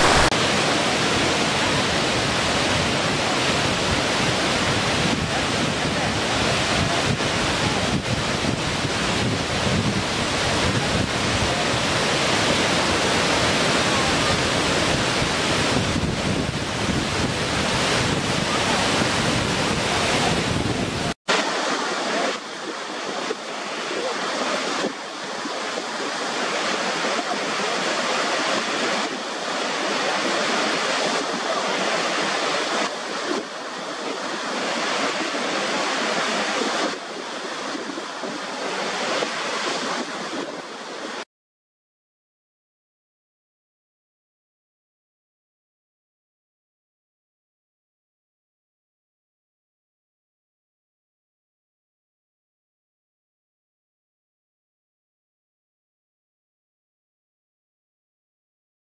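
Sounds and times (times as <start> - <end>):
waterfall rushing over rock: 0.0 - 41.2.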